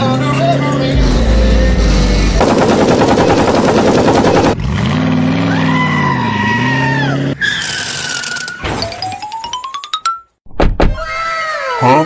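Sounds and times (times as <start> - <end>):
car engine revving: 0.8 - 5.6
loud rapid rattle: 1.8 - 4.6, 7.6 - 8.5.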